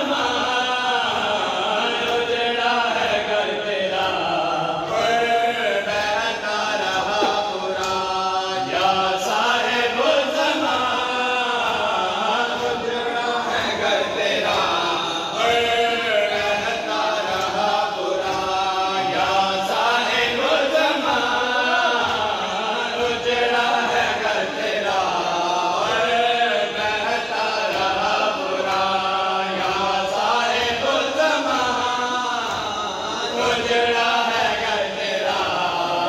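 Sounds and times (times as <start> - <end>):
men chanting a lament: 0.0 - 36.0
rhythmic chest-beating: 0.0 - 36.0.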